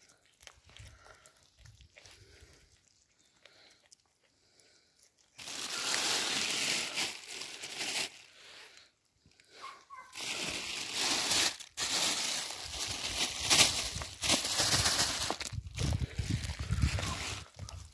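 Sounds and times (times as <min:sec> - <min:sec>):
plastic bag rustling: 0:05.4 - 0:08.4, 0:10.1 - 0:17.9.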